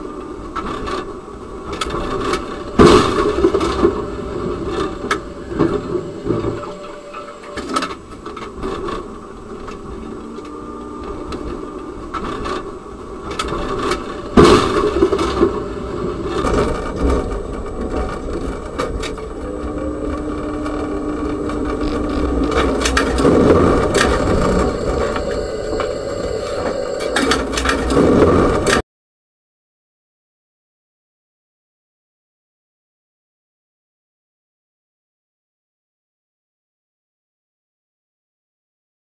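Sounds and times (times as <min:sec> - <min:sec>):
steady hum: 0:00.0 - 0:28.8
tram rumbling on rails: 0:00.0 - 0:28.8
loud collision bang: 0:13.4 - 0:18.9.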